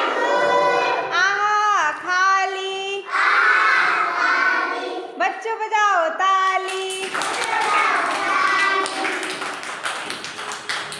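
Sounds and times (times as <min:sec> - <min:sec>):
children singing a rhyme: 0:00.0 - 0:05.2, 0:07.0 - 0:09.4.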